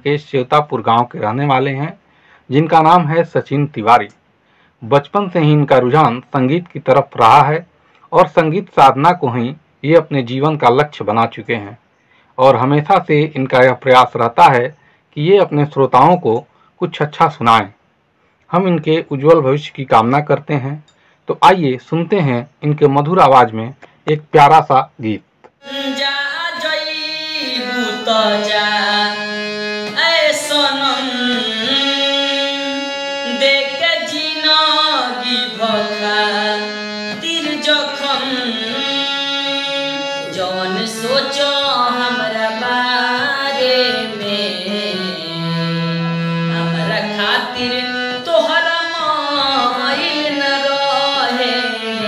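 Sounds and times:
harmonium: 0:00.0 - 0:11.7, 0:18.5 - 0:52.0
man singing slow melodic song: 0:25.7 - 0:48.8.

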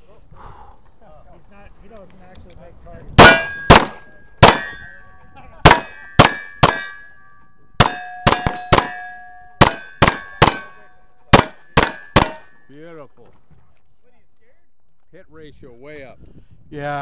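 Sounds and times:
pistol shots: 0:03.2 - 0:05.0, 0:05.6 - 0:07.1, 0:07.8 - 0:12.6
steel target clanging: 0:03.2 - 0:12.8.

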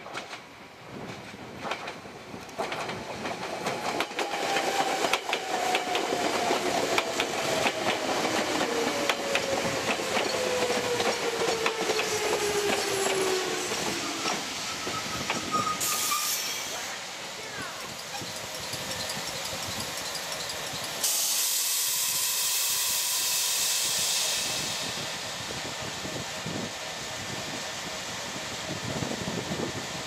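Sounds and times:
train wheels clicking over rail joints: 0:00.0 - 0:16.6, 0:17.9 - 0:22.7.

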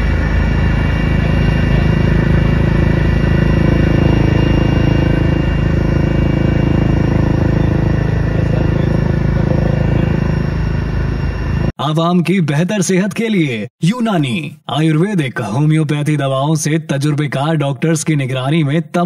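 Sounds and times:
helicopter engine and rotors: 0:00.0 - 0:11.8.

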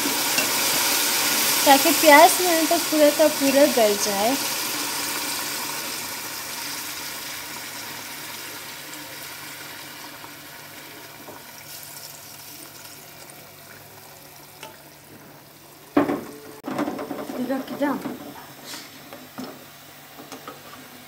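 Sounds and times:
water pouring into a pot: 0:00.0 - 0:15.1
meat frying in hot oil: 0:00.0 - 0:21.0.

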